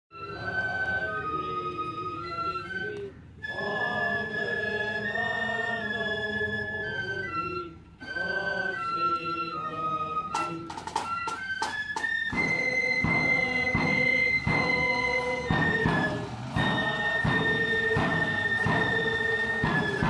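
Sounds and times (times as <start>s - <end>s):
flutes playing melody: 0.1s - 20.0s
side drums and bass drum: 12.3s - 20.0s.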